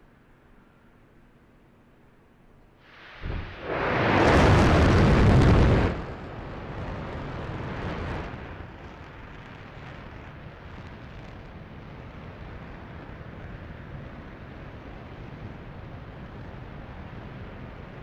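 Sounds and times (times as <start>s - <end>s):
rocket engine roaring: 2.9s - 11.0s.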